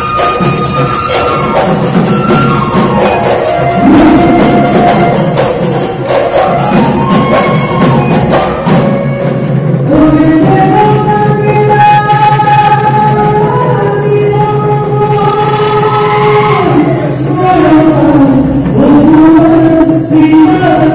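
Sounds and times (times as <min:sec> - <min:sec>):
jingling percussion beat: 0:00.0 - 0:10.4
folk dance music from loudspeaker: 0:00.0 - 0:20.9.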